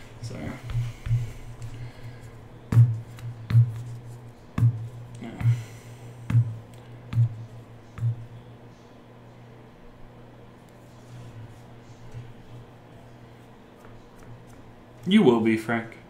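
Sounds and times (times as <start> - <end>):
steady low hum: 0.0 - 16.0
hand tapping on table: 4.6 - 5.7, 6.3 - 7.4, 8.0 - 8.3.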